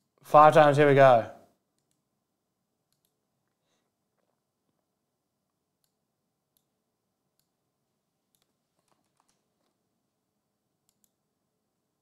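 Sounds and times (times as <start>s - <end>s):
computer mouse clicks: 1.7s - 2.1s, 2.8s - 3.2s, 5.8s - 7.6s, 8.3s - 9.8s, 10.8s - 11.2s.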